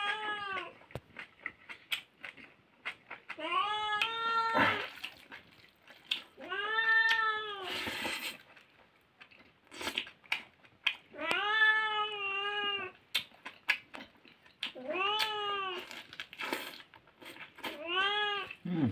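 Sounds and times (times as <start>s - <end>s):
eating clicks and smacks: 0.8s - 3.4s, 4.9s - 6.3s, 9.2s - 11.4s, 13.1s - 17.5s
cat meowing: 3.4s - 4.9s, 6.4s - 7.7s, 11.1s - 13.0s, 17.8s - 18.6s.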